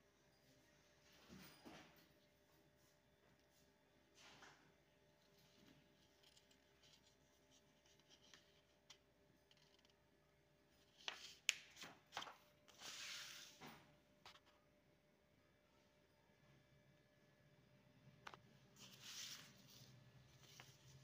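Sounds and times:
paper rustle: 10.8s - 13.7s, 18.8s - 21.0s.

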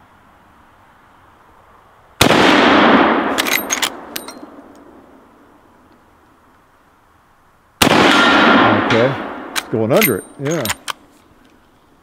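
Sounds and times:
rifle shot echoing: 2.2s - 4.7s, 7.8s - 10.8s
metallic clacks of rifle lever: 3.3s - 4.5s, 9.6s - 11.6s.

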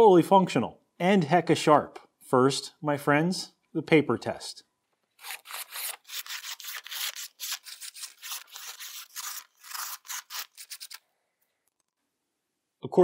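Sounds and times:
knife slicing paper: 5.2s - 11.0s.

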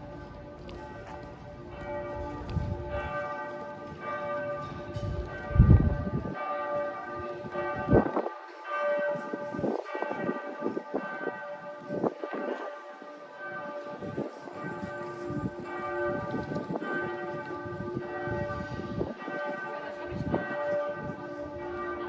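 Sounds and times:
church bells ringing: 0.0s - 22.0s.

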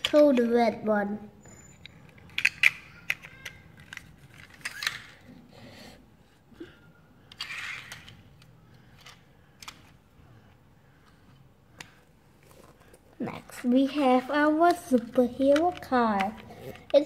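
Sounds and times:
toy cars clicking on tile floor: 1.6s - 5.3s, 7.2s - 10.0s, 14.3s - 17.0s.

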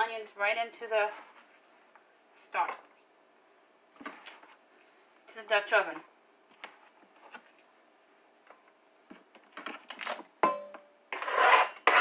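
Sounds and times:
cutting board and knife scraping: 11.1s - 12.0s.

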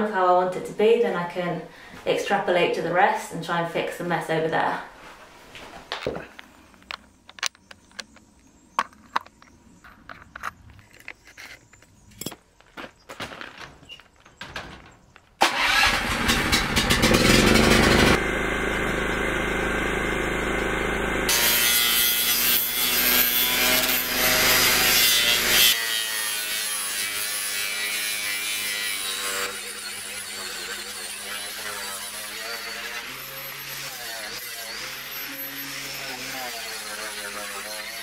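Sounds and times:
angle grinder sanding wood: 16.7s - 38.0s.

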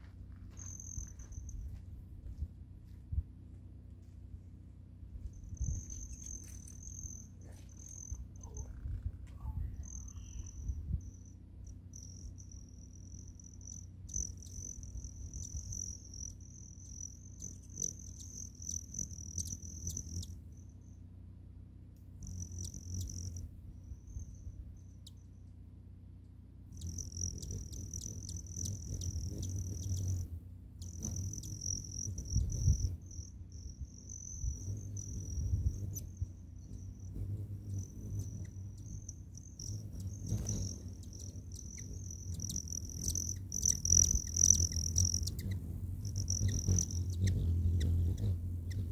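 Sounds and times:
low rumble: 0.0s - 20.6s
hummingbird wing trill: 0.6s - 1.8s, 5.2s - 20.6s, 22.0s - 25.2s, 26.6s - 48.9s.

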